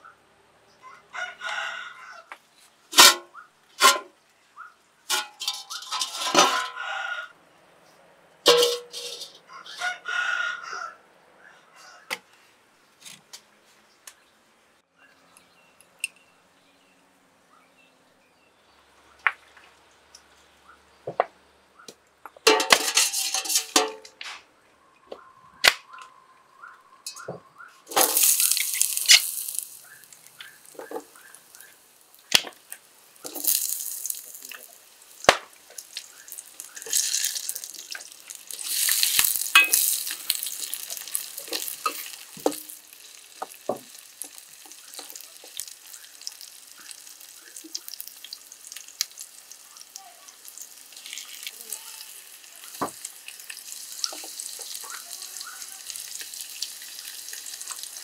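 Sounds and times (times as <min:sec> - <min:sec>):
utensil scraping a pan: 0:03.0 - 0:04.1, 0:05.1 - 0:06.8, 0:08.5 - 0:09.4, 0:22.5 - 0:24.0, 0:36.6 - 0:42.8
vegetables sizzling in hot oil: 0:27.9 - 0:58.0.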